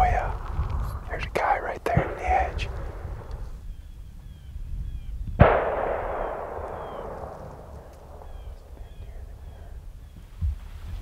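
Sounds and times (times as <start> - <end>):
distant gunshot echoing: 1.9 - 3.6, 5.4 - 9.8.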